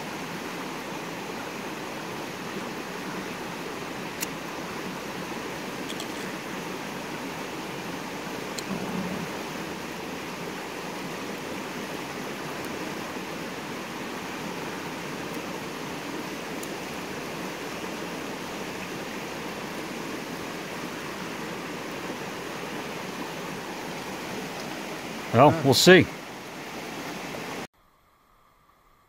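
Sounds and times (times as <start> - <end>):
river rushing over rapids: 0.0 - 27.7.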